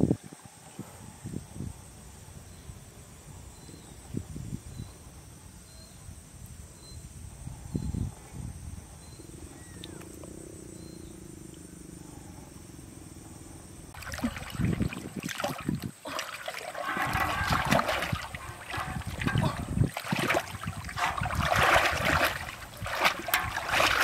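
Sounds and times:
water splashing and sloshing: 13.9 - 24.0.

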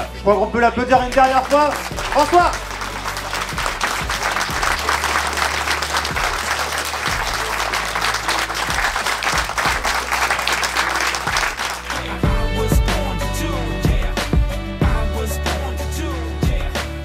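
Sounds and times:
background music: 0.0 - 17.0
audience applauding: 1.1 - 12.3.

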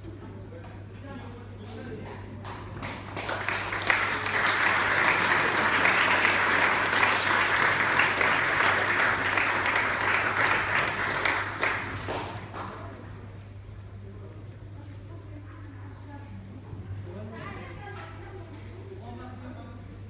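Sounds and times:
audience applauding: 2.4 - 13.0.

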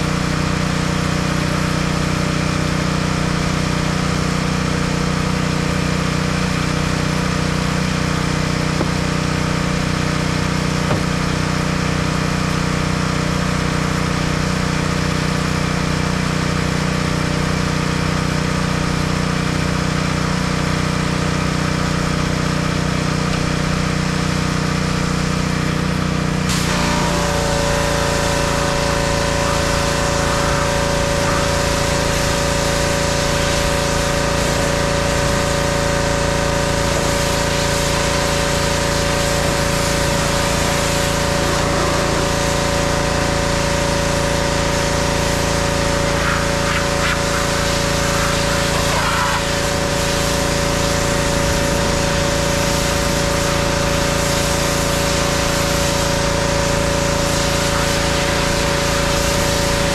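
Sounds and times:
pressure washer engine running: 0.0 - 59.9
water spray hiss: 26.5 - 59.9.

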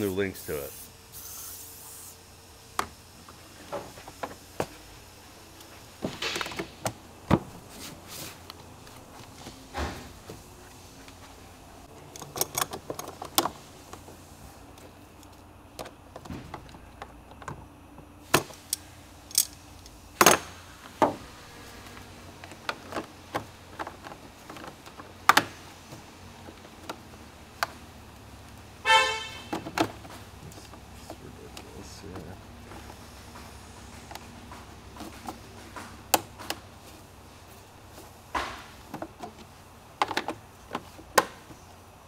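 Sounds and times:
plastic parts clicking and knocking: 40.0 - 41.6.

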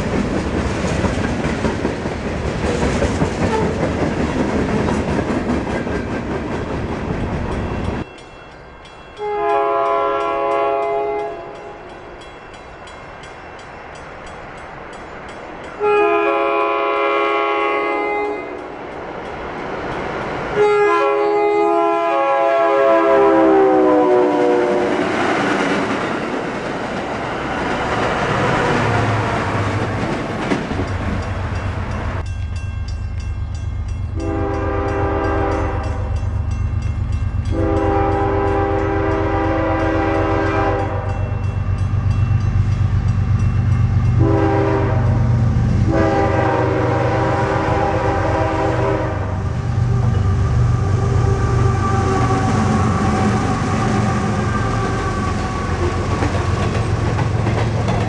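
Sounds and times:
rush of passing train coaches: 0.0 - 58.0
train horn: 3.4 - 3.8, 9.2 - 12.2, 15.8 - 18.8, 20.5 - 25.1, 34.2 - 36.3, 37.4 - 41.4, 44.0 - 56.6
locomotive horn blasts: 9.2 - 11.9, 15.8 - 18.7, 20.6 - 24.9, 34.2 - 36.2, 37.5 - 41.4, 44.2 - 56.0.

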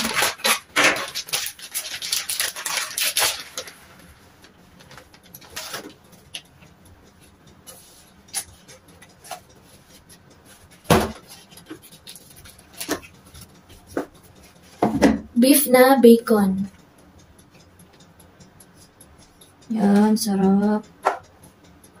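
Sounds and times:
plastic packaging crinkling: 0.0 - 4.0.

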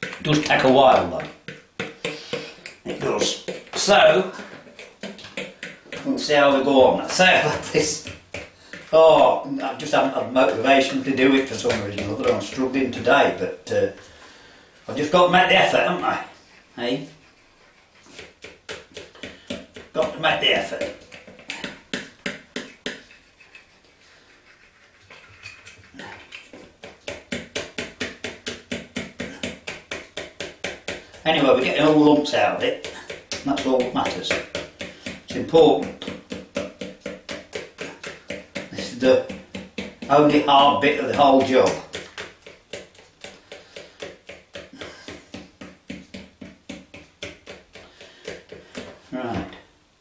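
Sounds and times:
whisk clicking against plastic bowl: 0.0 - 9.0, 18.0 - 23.6, 25.5 - 49.1.

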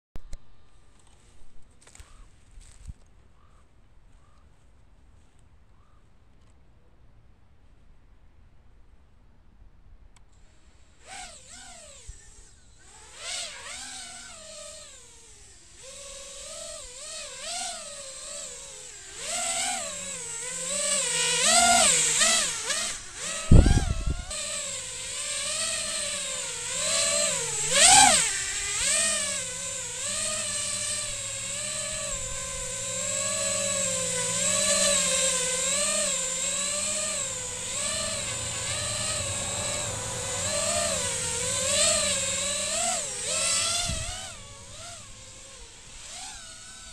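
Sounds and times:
drone propellers whining: 10.4 - 46.9.

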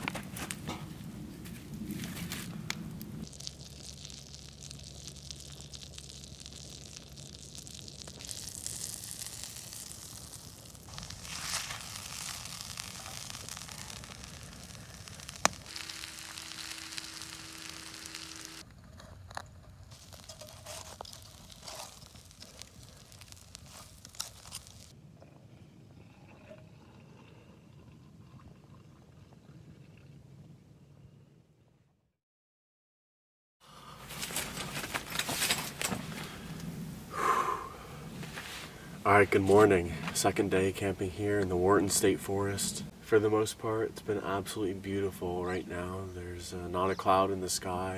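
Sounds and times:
campfire wood crackling: 0.0 - 26.0, 33.7 - 47.9
wood snapping: 2.3 - 18.6
butter sizzling in skillet: 3.2 - 18.6, 19.9 - 25.0.

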